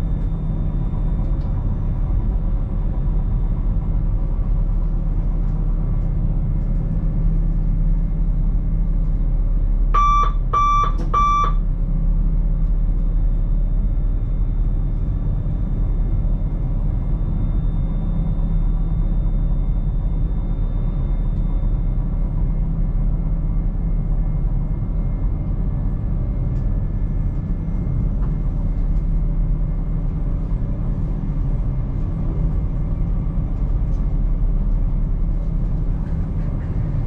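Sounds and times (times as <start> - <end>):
electric train rumbling: 0.0 - 37.0
short electronic beeps: 10.0 - 11.6.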